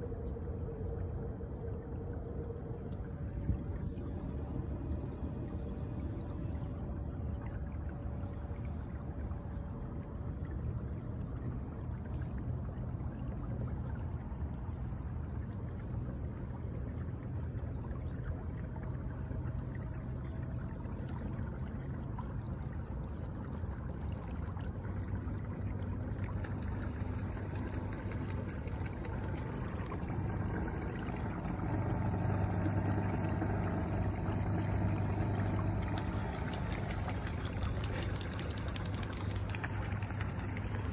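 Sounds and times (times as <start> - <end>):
water rushing and splashing: 21.2 - 40.9.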